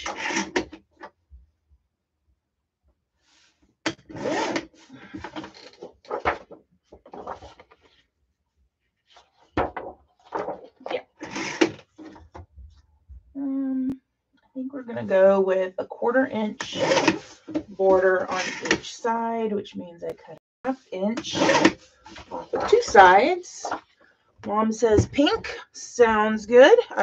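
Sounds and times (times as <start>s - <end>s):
objects rubbing and rustling: 3.2s - 8.2s, 8.8s - 12.8s, 16.4s - 19.1s, 21.0s - 25.6s.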